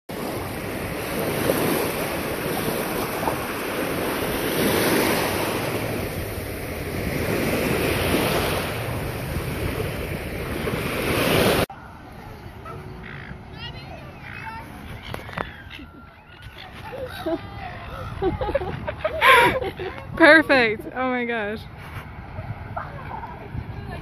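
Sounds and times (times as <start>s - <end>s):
small waves washing over sand: 0.1s - 12.3s
wind buffeting microphone: 0.1s - 24.0s.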